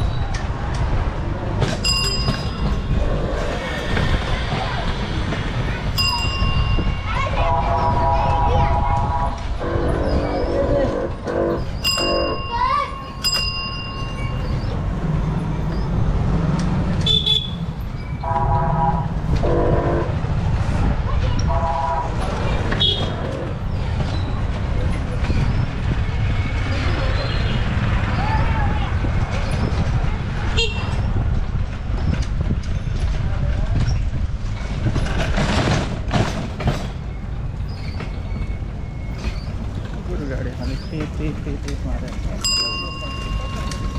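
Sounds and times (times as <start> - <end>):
low rumble of street traffic: 0.0 - 43.9
rickshaw rattling: 0.1 - 8.8, 22.1 - 43.9
vehicle horn: 7.4 - 12.5, 17.0 - 17.6, 18.2 - 20.2, 21.5 - 22.2, 30.6 - 30.9.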